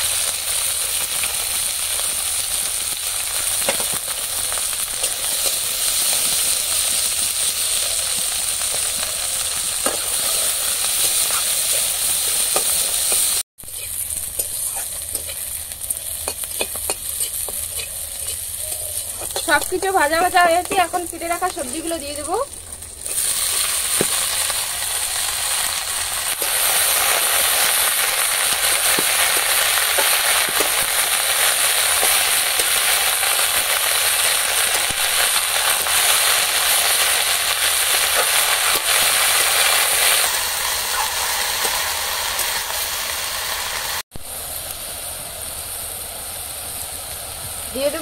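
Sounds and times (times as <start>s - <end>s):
vegetables sizzling in oil: 0.0s - 48.0s
metal spatula scraping: 16.2s - 21.0s.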